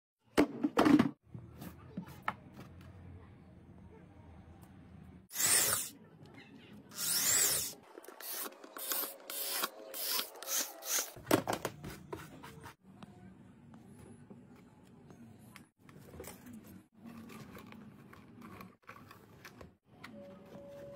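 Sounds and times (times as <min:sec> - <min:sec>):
small drill boring through plastic: 0:05.3 - 0:05.9, 0:06.9 - 0:11.2.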